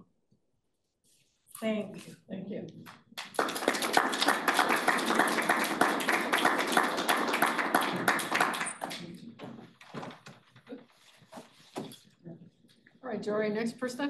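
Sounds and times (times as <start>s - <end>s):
audience applauding: 3.2s - 9.4s.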